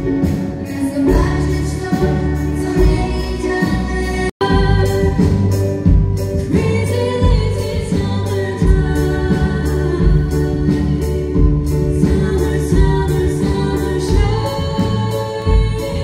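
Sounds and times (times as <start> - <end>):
drums steady beat: 0.0 - 16.0
live band playing: 0.0 - 16.0
girls singing: 6.4 - 16.0.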